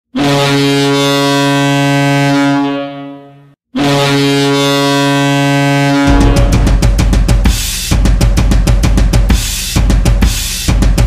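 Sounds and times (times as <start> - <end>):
deep goal horn blasts: 3.8 - 7.2.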